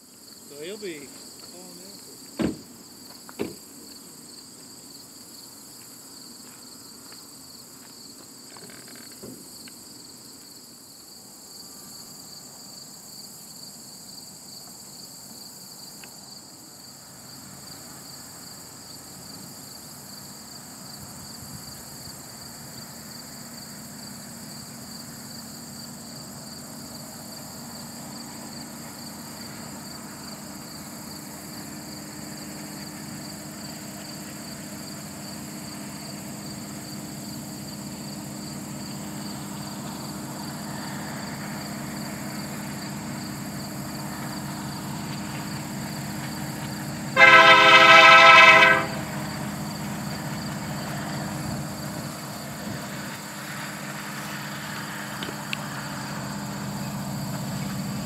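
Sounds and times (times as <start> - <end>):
high insect chorus: 0.0 - 58.0
diesel locomotive engine: 16.4 - 58.0.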